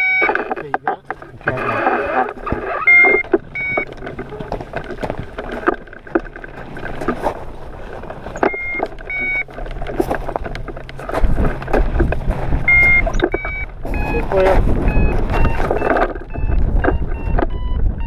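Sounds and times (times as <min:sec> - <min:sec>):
short electronic beeps: 0:00.0 - 0:00.6, 0:02.7 - 0:03.9, 0:08.4 - 0:09.5, 0:12.7 - 0:18.0
wind buffeting microphone: 0:01.3 - 0:18.0
harness rustling and knocks: 0:02.3 - 0:17.1.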